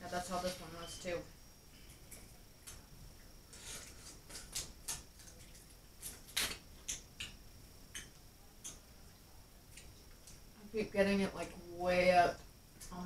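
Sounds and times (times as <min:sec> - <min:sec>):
crab shell cracking and snapping: 0:04.3 - 0:08.8.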